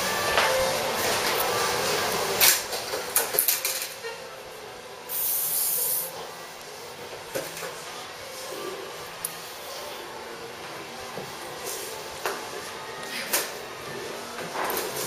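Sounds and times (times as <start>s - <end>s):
aerosol hairspray hiss: 5.1s - 6.1s.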